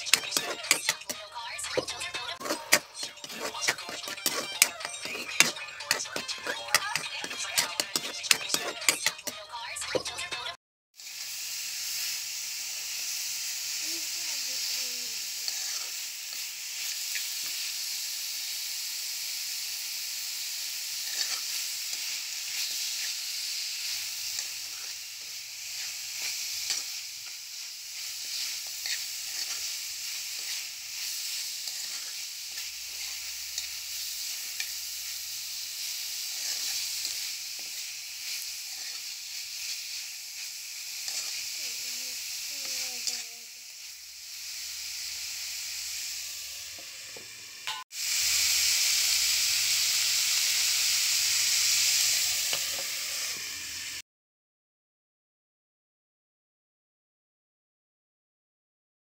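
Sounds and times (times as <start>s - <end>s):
spatula scraping and tapping pan: 0.0s - 10.4s, 28.3s - 29.7s, 30.3s - 33.7s, 36.3s - 37.8s, 41.0s - 41.4s
food sizzling in a pan: 0.0s - 54.0s.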